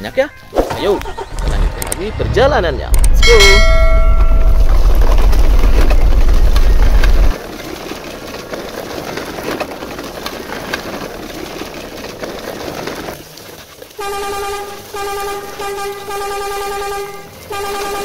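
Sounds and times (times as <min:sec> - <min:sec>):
toy wheels rolling over leaves: 0:03.2 - 0:18.0
horn honking: 0:14.0 - 0:18.0.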